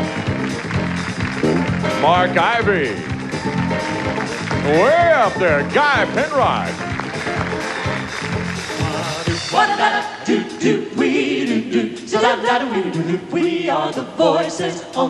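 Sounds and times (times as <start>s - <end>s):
vocal group singing in harmony: 8.9s - 15.0s.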